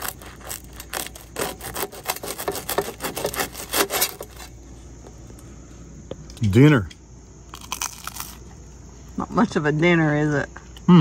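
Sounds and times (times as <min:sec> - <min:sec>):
knife sawing through bread crust: 0:00.0 - 0:04.5.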